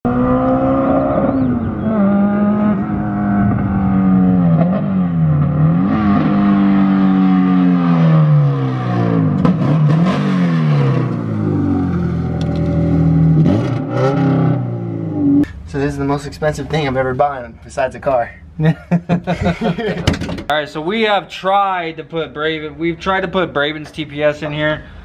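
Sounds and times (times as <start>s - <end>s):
car engine revving: 0.1s - 15.5s.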